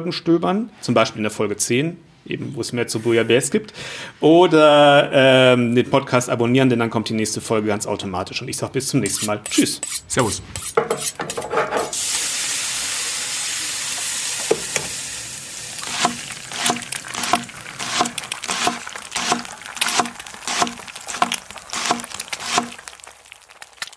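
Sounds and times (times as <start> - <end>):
food sizzling in a pan: 11.8 - 23.9.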